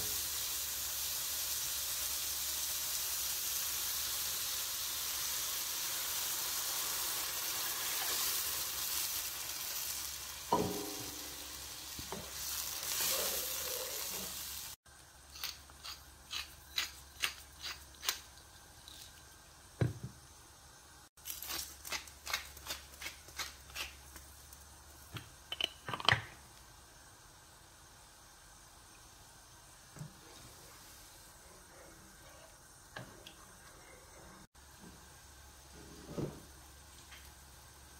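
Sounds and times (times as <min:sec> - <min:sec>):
food sizzling in frying pan: 0:00.0 - 0:15.2
pepper mill grinding: 0:15.3 - 0:19.3, 0:21.2 - 0:24.2.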